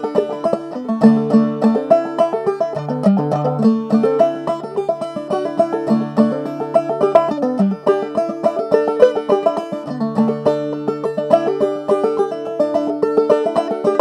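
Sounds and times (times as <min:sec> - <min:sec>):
banjo plucked notes: 0:00.0 - 0:14.0.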